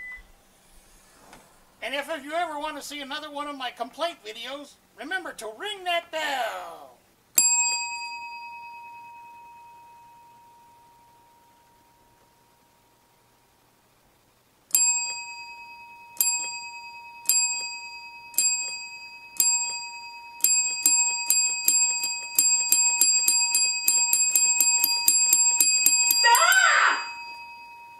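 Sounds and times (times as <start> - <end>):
desk bell ringing: 7.4 - 12.6, 14.7 - 27.9.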